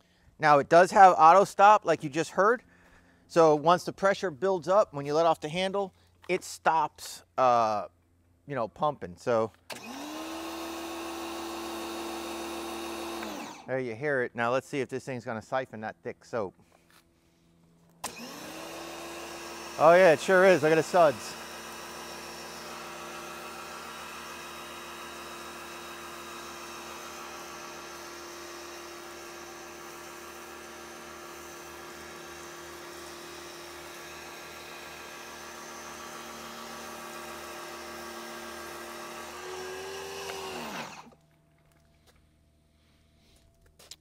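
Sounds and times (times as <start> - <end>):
pressure washer motor humming: 9.7 - 13.7, 18.0 - 41.2.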